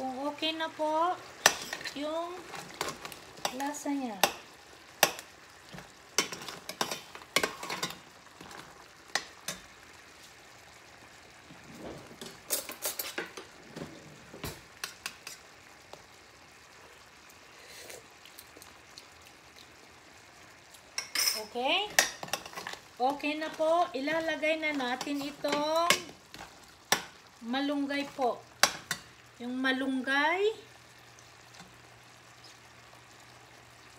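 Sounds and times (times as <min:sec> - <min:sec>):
sauce simmering: 0:00.0 - 0:33.9
metal ladle scraping a pan: 0:12.2 - 0:13.3.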